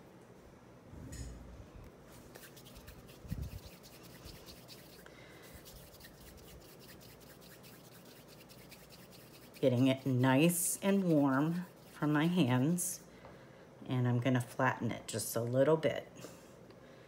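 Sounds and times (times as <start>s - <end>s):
hands rubbing clay: 2.3s - 12.4s.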